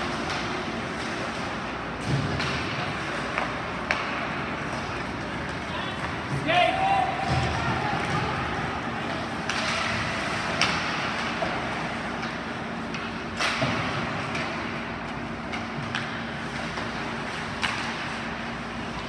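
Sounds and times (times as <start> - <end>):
hockey sticks and puck clacking: 0.0 - 19.0.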